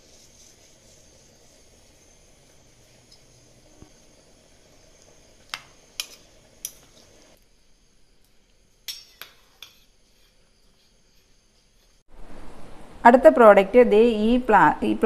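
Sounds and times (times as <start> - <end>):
metal kitchenware clinking: 8.9 - 9.9.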